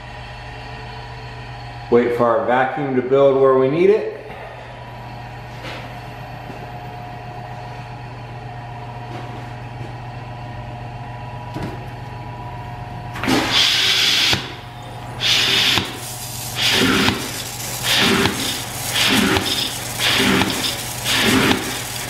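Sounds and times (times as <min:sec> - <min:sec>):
vacuum pump humming: 0:00.0 - 0:22.0
hissing sucking bursts: 0:15.1 - 0:22.0.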